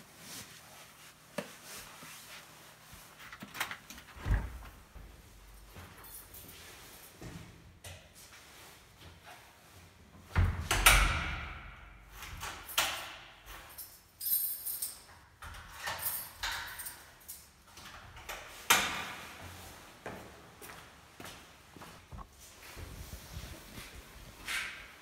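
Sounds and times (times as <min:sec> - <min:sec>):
door shutting with heavy thud: 0:04.2 - 0:04.8.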